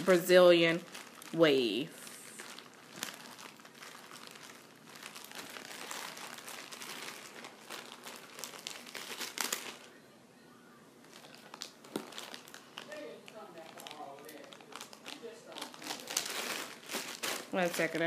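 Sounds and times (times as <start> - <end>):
plastic packaging crinkling: 0.0 - 10.0, 11.0 - 18.0.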